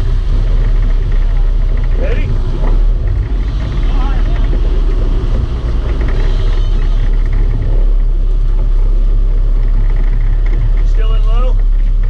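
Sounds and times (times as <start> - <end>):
boat engines droning: 0.0 - 12.0
water washing along hull: 0.0 - 12.0.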